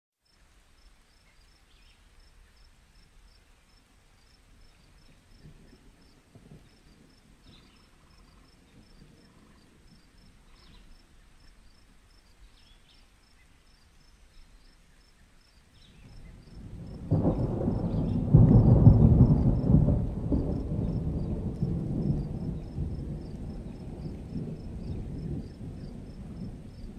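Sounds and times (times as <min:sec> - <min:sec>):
soft rain: 0:00.2 - 0:26.9
rolling thunder: 0:04.9 - 0:10.8, 0:15.9 - 0:26.9.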